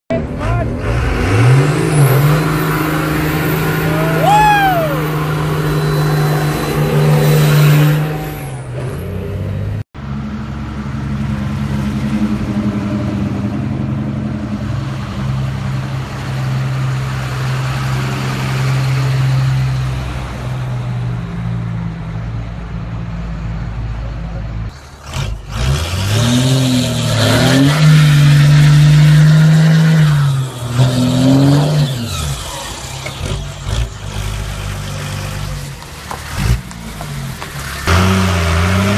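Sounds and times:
diesel engine running loud: 0:00.2 - 0:38.9
vehicle engine running steadily: 0:09.5 - 0:17.4.

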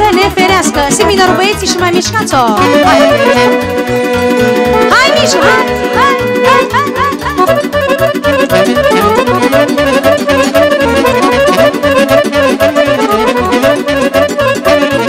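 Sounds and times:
live band playing folk dance music: 0:00.0 - 0:15.0.

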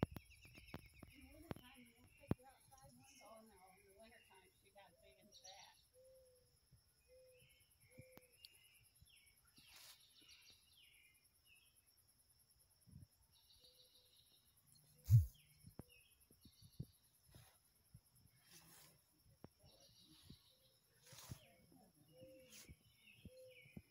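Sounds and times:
birds chirping: 0:00.0 - 0:12.0, 0:13.2 - 0:17.3, 0:18.2 - 0:23.9
dull low thump: 0:15.1 - 0:15.4.

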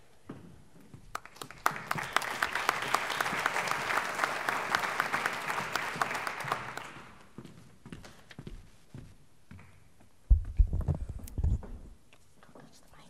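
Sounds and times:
audience applauding: 0:01.1 - 0:07.3.

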